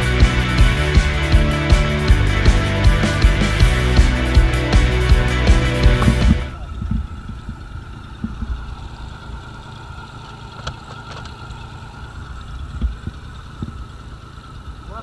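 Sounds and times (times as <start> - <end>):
boat engine rumbling: 0.0 - 15.0.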